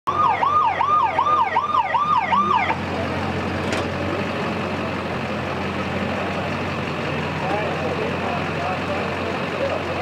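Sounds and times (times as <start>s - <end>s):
electronic siren yelping: 0.1s - 2.8s
truck engine idling: 0.1s - 10.0s.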